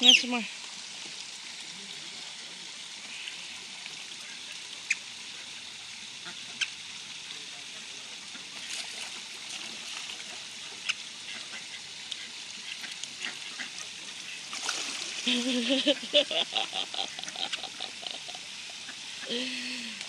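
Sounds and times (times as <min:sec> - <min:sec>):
water splashing lightly: 0:06.2 - 0:20.0.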